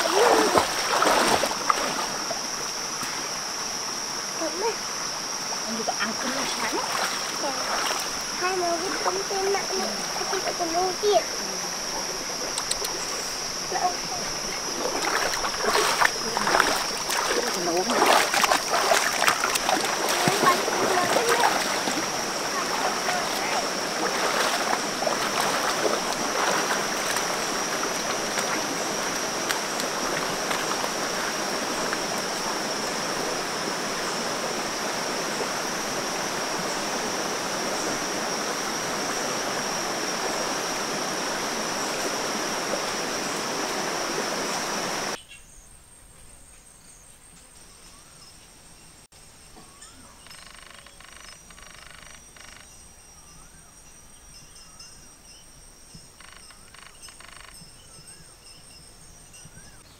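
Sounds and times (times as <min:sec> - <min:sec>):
stream running over rocks: 0:00.0 - 0:45.2
water splashing: 0:00.0 - 0:45.2
forest ambience: 0:00.0 - 0:59.9.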